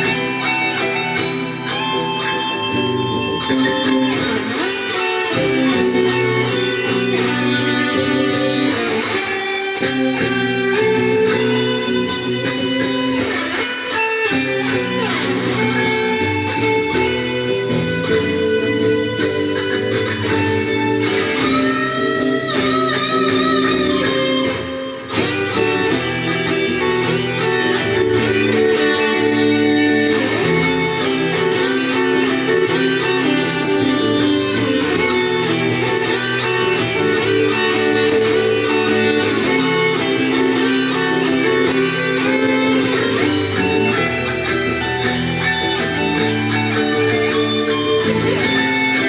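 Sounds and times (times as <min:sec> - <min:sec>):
electric guitar playing metal: 0:00.0 - 0:49.0.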